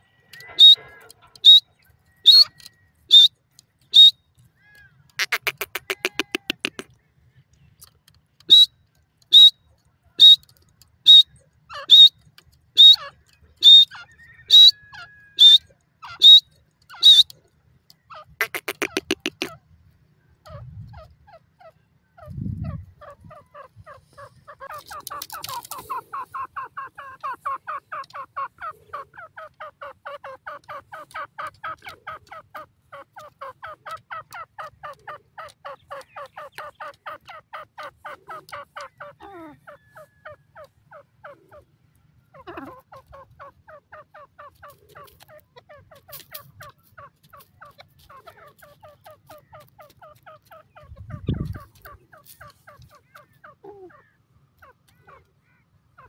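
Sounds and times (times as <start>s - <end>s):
bird calling rapid notes: 0.4s - 4.2s, 5.2s - 6.9s, 8.4s - 9.6s, 10.2s - 17.3s, 18.1s - 19.6s.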